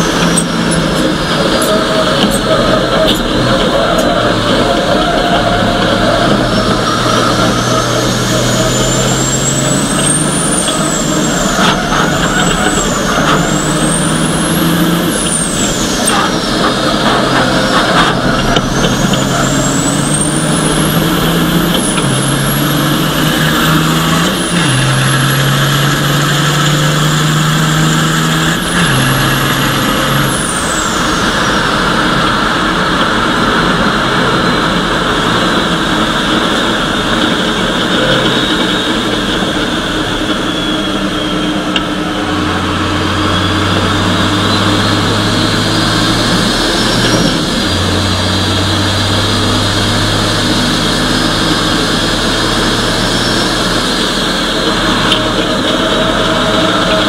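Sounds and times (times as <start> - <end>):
race truck diesel engine whine: 0.0 - 57.0.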